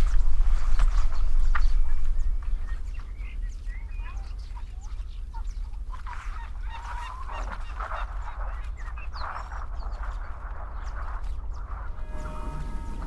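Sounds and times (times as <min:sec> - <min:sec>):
steady low rumble: 0:00.0 - 0:06.7, 0:07.8 - 0:13.0
birds chirping and calling: 0:00.0 - 0:13.0
rough loud bird calls: 0:00.0 - 0:13.0.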